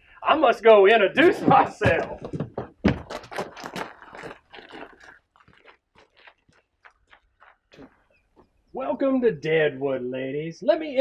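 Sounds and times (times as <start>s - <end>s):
footsteps crunching on gravel: 1.2s - 8.6s.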